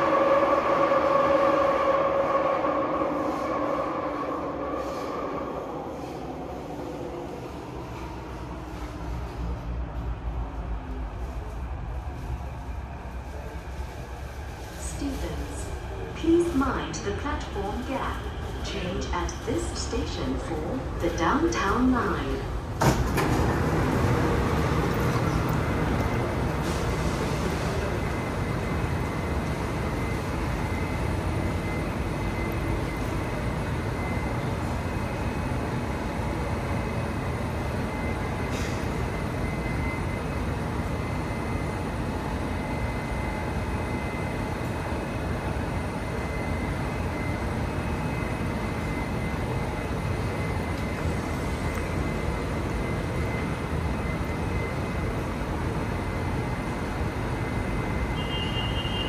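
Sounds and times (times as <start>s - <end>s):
train wheels rumbling on track: 0.0s - 59.0s.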